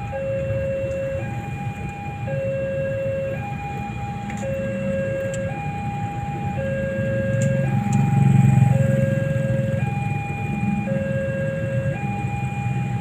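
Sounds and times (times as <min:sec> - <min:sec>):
level-crossing two-tone alarm: 0:00.0 - 0:13.0.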